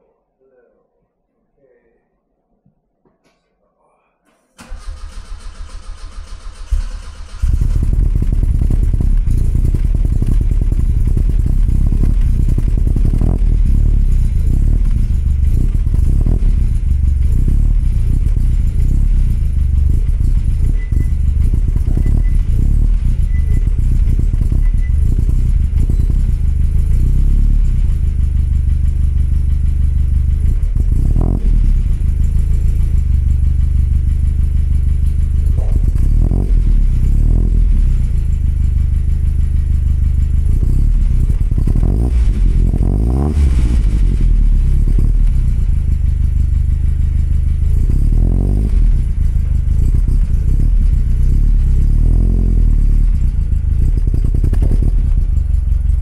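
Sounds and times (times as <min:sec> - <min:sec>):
car engine starting and idling: 0:04.6 - 0:56.0.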